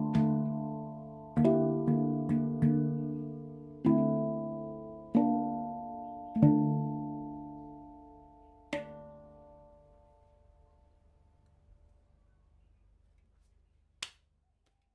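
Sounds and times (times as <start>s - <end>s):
handpan notes ringing: 0.0s - 10.6s.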